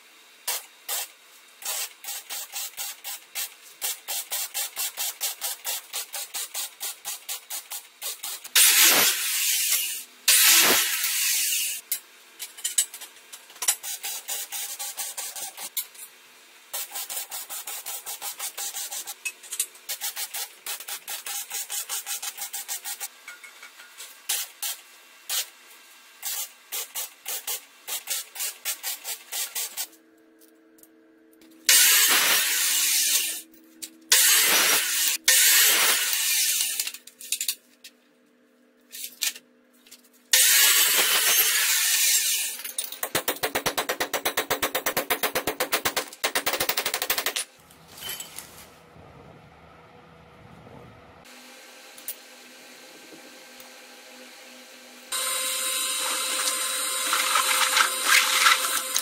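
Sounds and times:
welding arc crackling: 0.5 - 11.8, 31.7 - 33.4, 34.1 - 36.9, 55.2 - 59.0
chop saw cutting metal tubing: 8.1 - 11.8, 31.7 - 33.4, 34.1 - 37.0, 40.3 - 47.4, 55.1 - 59.0.

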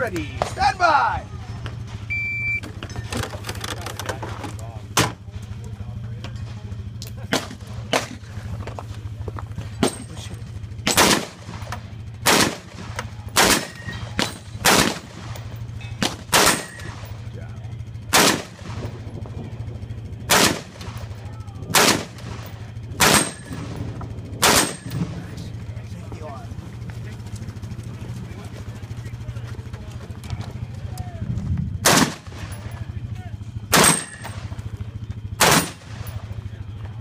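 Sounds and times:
low hum: 0.0 - 37.0
loud gunshots: 10.8 - 15.4, 16.0 - 17.0, 18.0 - 19.1, 20.2 - 21.1, 21.7 - 23.8, 24.4 - 25.2, 31.8 - 32.7, 33.7 - 34.5, 35.4 - 36.2.

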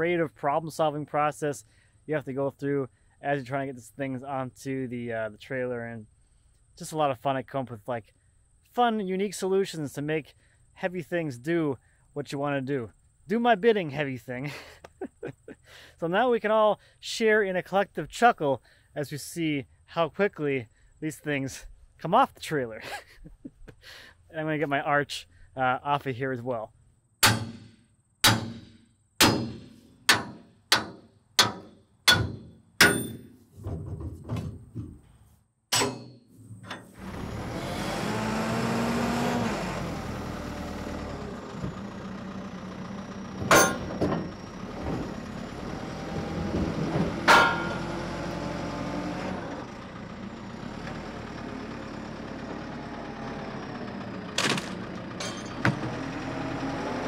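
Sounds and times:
sharp metal clanks: 27.2 - 33.4, 35.7 - 37.0, 43.5 - 44.2, 47.3 - 47.9, 55.2 - 55.8
sledgehammer blows on steel: 27.2 - 33.4, 47.3 - 47.9
diesel engine running: 36.4 - 57.0.

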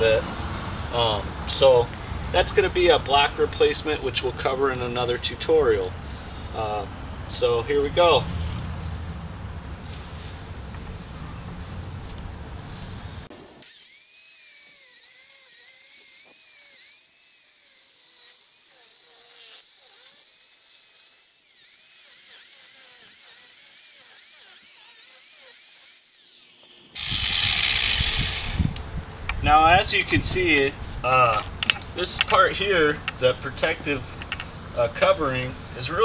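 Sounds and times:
angle grinder cutting mortar: 13.6 - 28.8.

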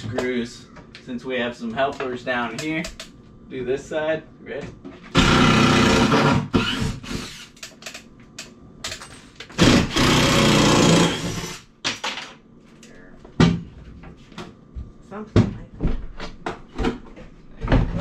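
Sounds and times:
cordless drill motor running: 5.2 - 7.6, 9.6 - 11.6.

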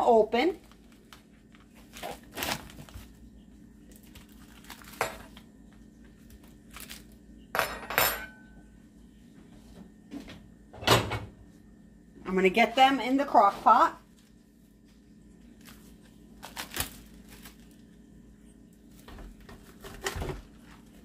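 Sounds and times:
plastic packaging crinkling and tearing: 0.5 - 5.5, 6.2 - 7.2, 15.4 - 18.1.

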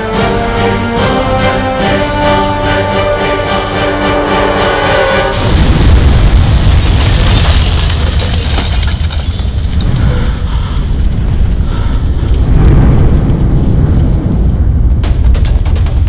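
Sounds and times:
hissing crackling debris: 5.3 - 16.0
large explosion rumble: 5.3 - 16.0.

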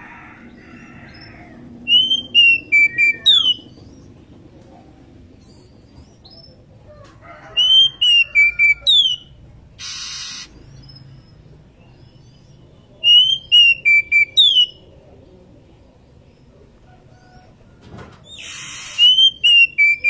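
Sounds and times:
bird whistled calls: 1.9 - 3.8, 7.6 - 10.5, 13.0 - 14.8, 18.3 - 20.0.

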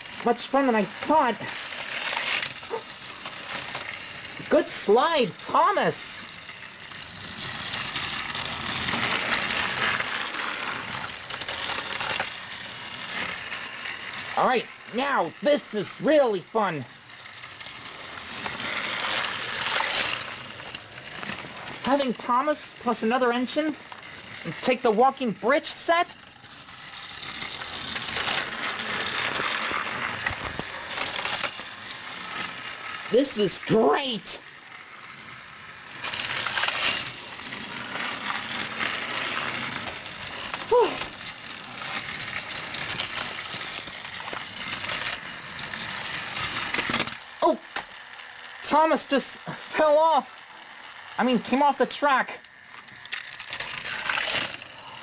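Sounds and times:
toy train motor whirring: 0.0 - 55.0.

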